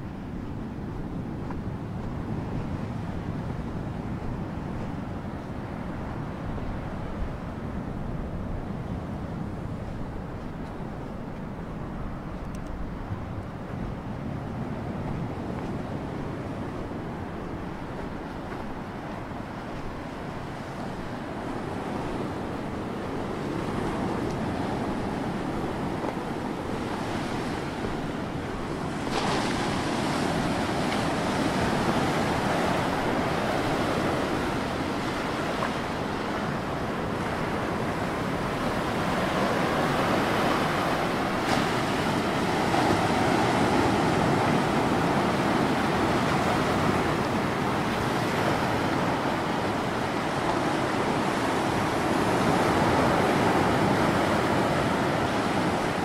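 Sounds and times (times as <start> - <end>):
sea waves breaking on rocks: 19.8 - 56.0.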